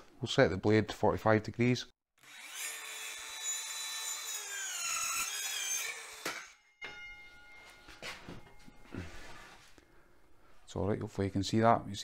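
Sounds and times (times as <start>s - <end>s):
circular saw cutting wood: 2.2s - 6.6s.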